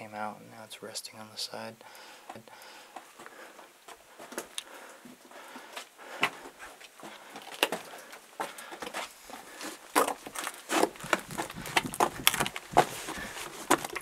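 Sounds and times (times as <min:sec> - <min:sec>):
footsteps crunching on rock: 0:05.4 - 0:14.0.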